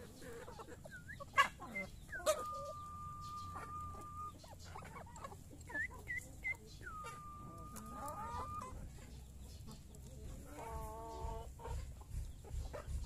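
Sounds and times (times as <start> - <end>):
hens chirping: 0.0 - 13.0.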